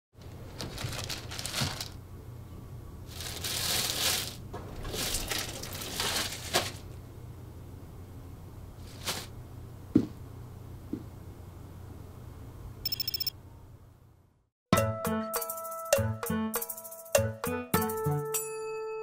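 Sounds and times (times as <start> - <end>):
plastic bags rustling: 0.2 - 2.0, 3.0 - 7.0, 8.8 - 9.4.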